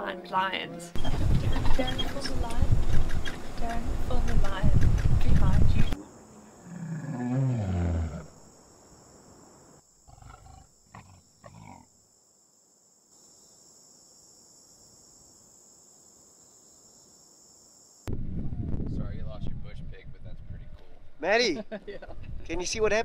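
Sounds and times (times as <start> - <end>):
lion grunts: 6.6 - 8.3, 10.1 - 11.9
lion roaring: 6.6 - 8.4, 10.1 - 11.9.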